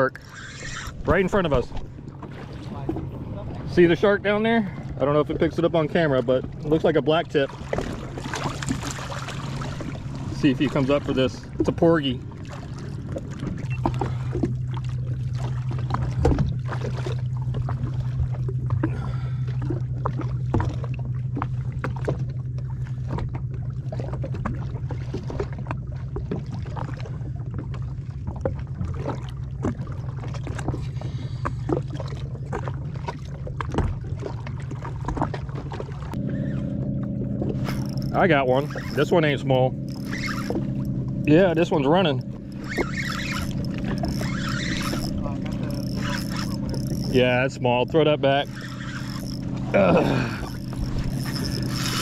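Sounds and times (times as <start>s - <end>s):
water slapping against hull: 0.0s - 52.0s
watercraft engine idling: 0.0s - 52.0s.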